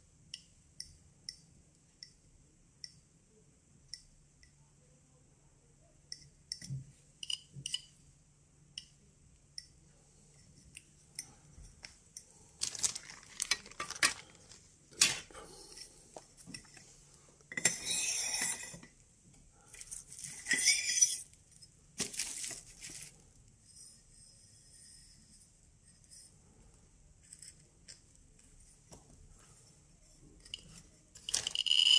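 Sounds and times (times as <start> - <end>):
metal parts clinking and rattling: 31.2 - 31.9.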